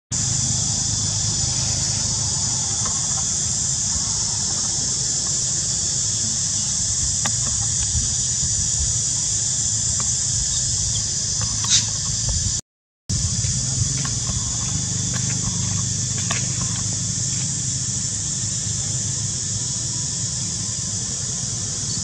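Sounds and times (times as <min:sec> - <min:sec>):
high-pitched insect drone: 0:00.1 - 0:22.0
low rumble: 0:00.2 - 0:19.5.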